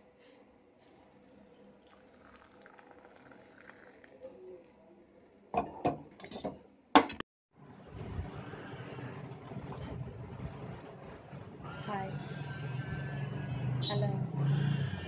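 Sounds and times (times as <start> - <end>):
tea trickling through strainer: 1.2 - 4.6.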